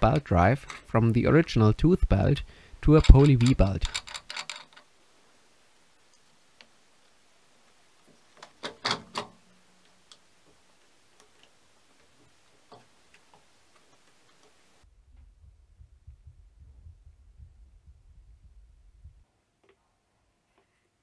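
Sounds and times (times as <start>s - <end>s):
clicks of metal parts: 0.1s - 0.9s, 2.8s - 4.9s, 8.4s - 9.4s.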